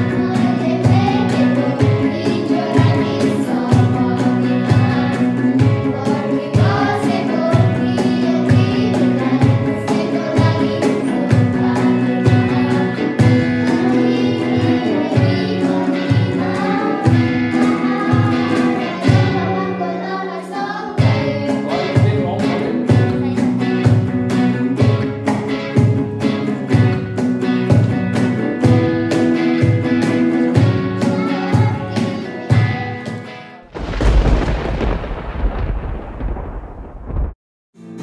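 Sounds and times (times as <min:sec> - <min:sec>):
cajon beat: 0:00.0 - 0:20.2, 0:21.0 - 0:36.4
girls singing together: 0:00.0 - 0:23.5, 0:30.8 - 0:33.6
strummed guitar: 0:00.0 - 0:35.8, 0:37.8 - 0:38.0.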